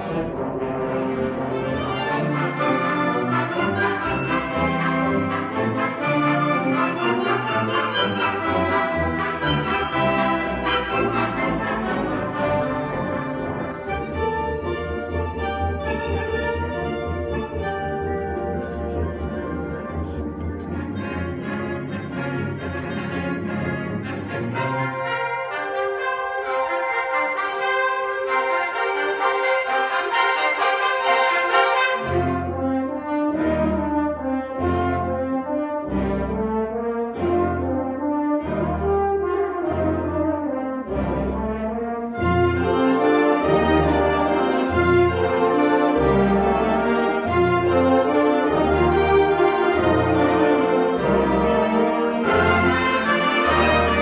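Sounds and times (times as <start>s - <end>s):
concert wind band playing: 0.0s - 54.0s
low brass punctuated notes: 51.4s - 54.0s.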